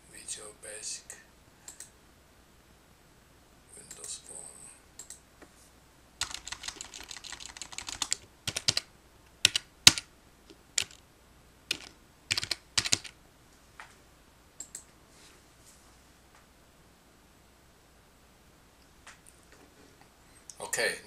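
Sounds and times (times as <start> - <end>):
typing on computer keyboard: 6.2 - 10.1, 10.8 - 11.0, 11.7 - 13.2.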